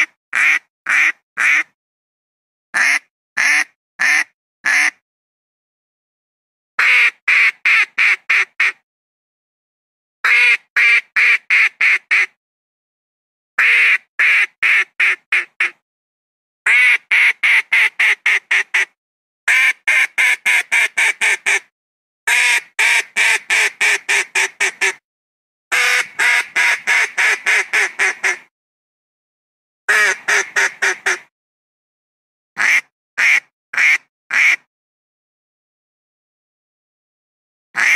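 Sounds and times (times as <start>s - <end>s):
duck quacking rapidly: 0.0s - 1.7s, 2.8s - 5.0s, 6.8s - 8.8s, 10.2s - 12.3s, 13.6s - 15.8s, 16.7s - 21.6s, 22.3s - 25.0s, 25.7s - 28.5s, 29.9s - 31.3s, 32.6s - 34.7s.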